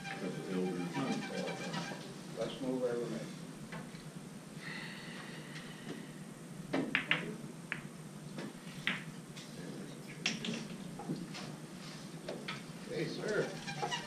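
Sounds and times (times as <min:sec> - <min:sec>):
low room murmur: 0:00.0 - 0:14.0
pool balls clacking: 0:06.7 - 0:09.1, 0:10.2 - 0:11.3.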